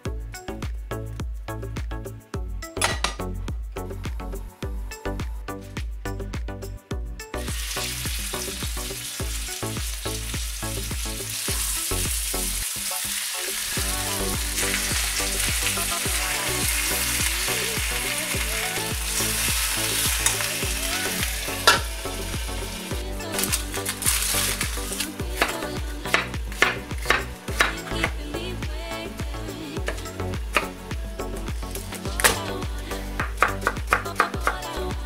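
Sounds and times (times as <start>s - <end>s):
meat sizzling in a frying pan: 7.5s - 27.7s.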